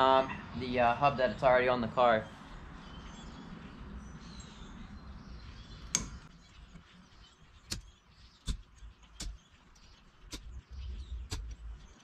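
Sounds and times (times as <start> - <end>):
metal clicks and taps: 5.9 - 6.3.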